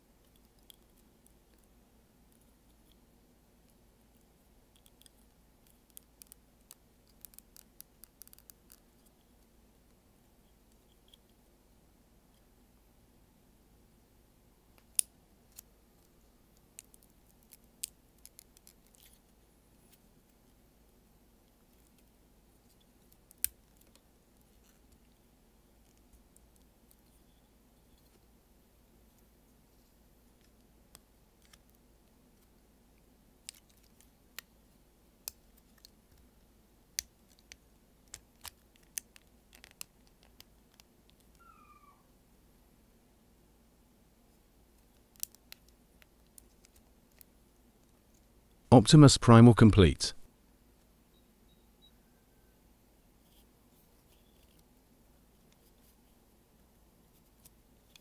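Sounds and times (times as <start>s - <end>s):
plastic parts clicking and snapping: 37.0s - 41.3s.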